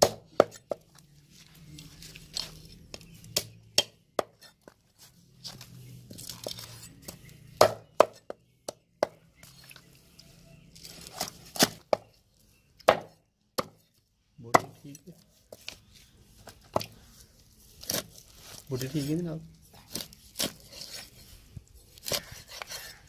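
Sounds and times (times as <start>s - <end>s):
knife cutting and scraping: 1.3s - 3.4s, 4.3s - 7.4s, 17.7s - 23.0s
knife striking wooden block: 7.6s - 9.2s, 12.8s - 13.8s, 14.6s - 14.8s.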